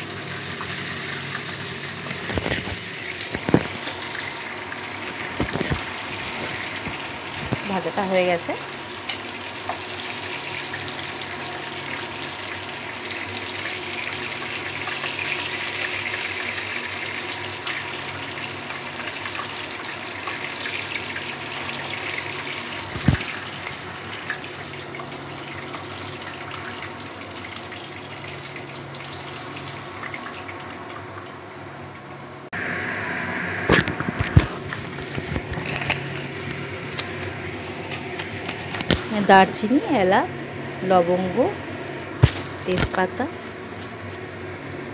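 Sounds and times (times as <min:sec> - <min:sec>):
chicken sizzling in oil: 0:00.0 - 0:33.8.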